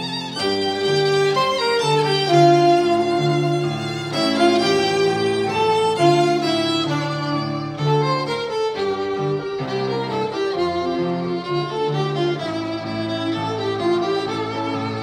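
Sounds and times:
piano accompaniment: 0.0s - 15.0s
violin melody: 0.0s - 15.0s.

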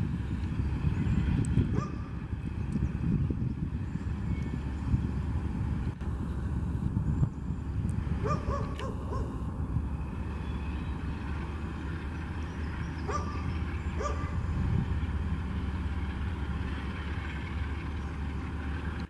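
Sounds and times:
low rumble: 0.0s - 19.0s
dog barking: 1.8s - 2.0s, 8.2s - 9.3s, 13.1s - 13.4s, 14.0s - 14.4s.

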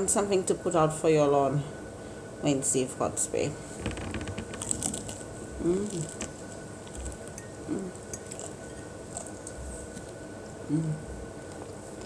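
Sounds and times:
person murmuring: 5.6s - 6.1s, 7.7s - 8.0s, 10.7s - 11.1s
chewing and mouth smacks: 8.0s - 10.2s.

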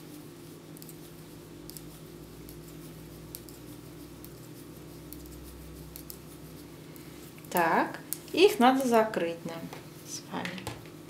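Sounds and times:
metal knitting needles clicking: 1.6s - 4.4s, 5.0s - 6.2s.

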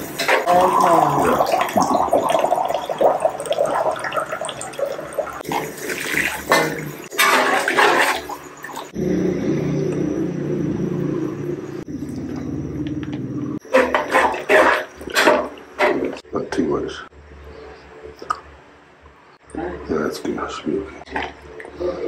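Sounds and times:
water splashing into hot wok: 0.0s - 8.9s
low rumble: 8.9s - 13.6s.

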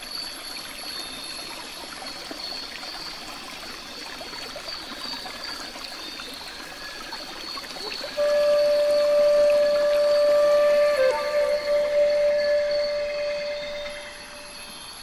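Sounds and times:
outdoor background hiss: 0.0s - 15.0s
thin high steady tone: 7.8s - 15.0s.

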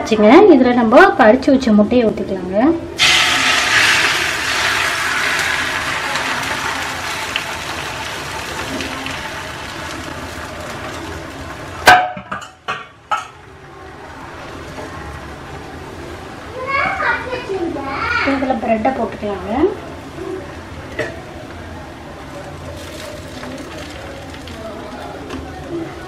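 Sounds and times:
egg sizzling in frying pan: 3.0s - 11.9s
knocks on pan: 11.8s - 13.4s.

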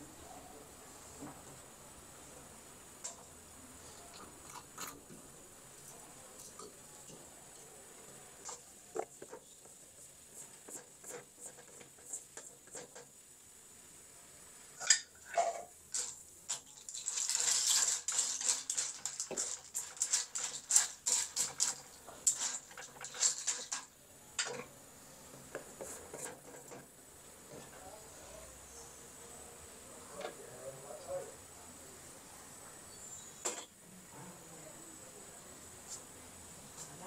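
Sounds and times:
food hissing: 0.4s - 27.3s
utensil scraping a pan: 8.4s - 13.1s, 14.8s - 24.7s, 25.5s - 26.8s.

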